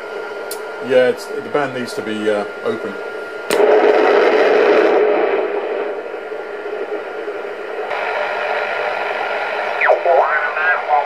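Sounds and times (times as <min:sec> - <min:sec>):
radio static hiss: 0:03.5 - 0:11.0.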